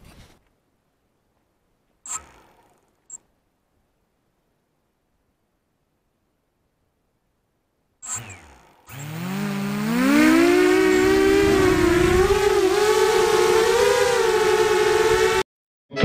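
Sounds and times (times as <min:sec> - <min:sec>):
drone motors whining: 0:02.1 - 0:03.0, 0:08.0 - 0:15.4.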